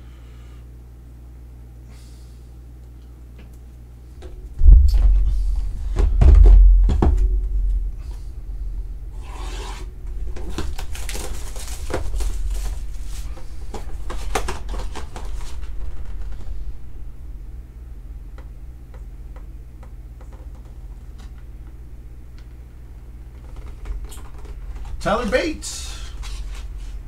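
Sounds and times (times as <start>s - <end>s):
cardboard box thumps: 4.8s - 7.6s
cardboard rubbing and scraping: 9.2s - 16.2s.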